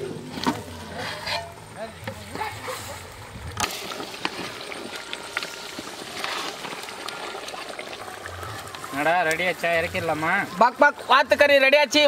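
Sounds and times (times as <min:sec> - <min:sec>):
ladle stirring boiling pot: 0:00.0 - 0:11.2.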